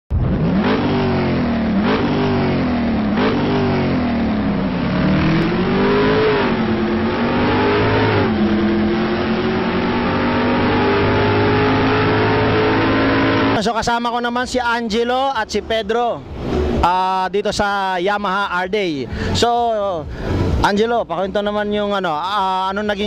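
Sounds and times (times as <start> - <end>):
engine accelerating through gears: 0.1 - 13.8.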